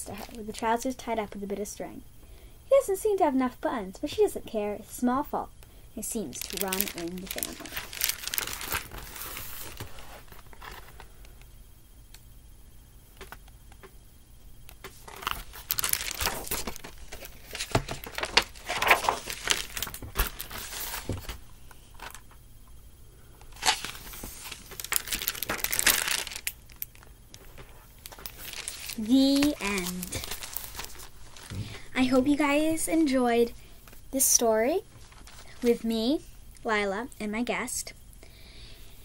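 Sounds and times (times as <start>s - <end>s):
book pages rustling and crinkling: 6.3s - 11.1s, 14.8s - 22.2s, 23.6s - 32.5s, 34.9s - 35.8s.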